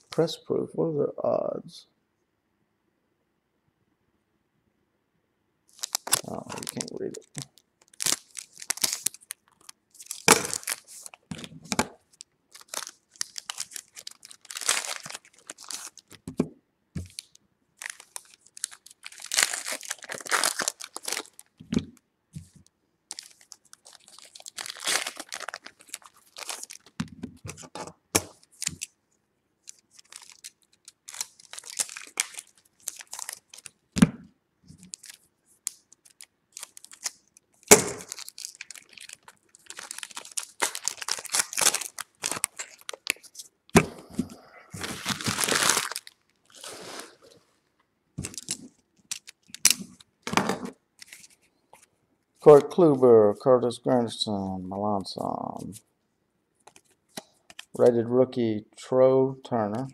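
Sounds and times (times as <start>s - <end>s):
wrappers tearing and crinkling: 5.7s - 16.2s, 17.0s - 21.6s, 23.1s - 29.0s, 29.6s - 33.8s, 34.8s - 44.0s, 44.8s - 47.4s, 48.2s - 50.1s, 51.0s - 51.4s.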